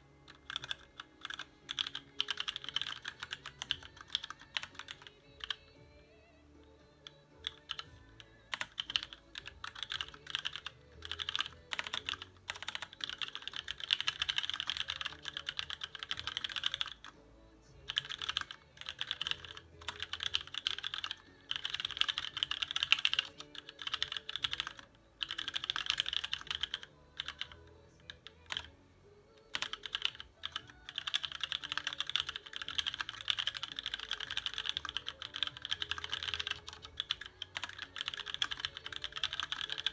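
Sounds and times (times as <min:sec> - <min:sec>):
faint music: 0:00.0 - 0:39.9
fast typing on mechanical keyboard: 0:00.3 - 0:05.9, 0:07.0 - 0:28.8, 0:29.4 - 0:39.9.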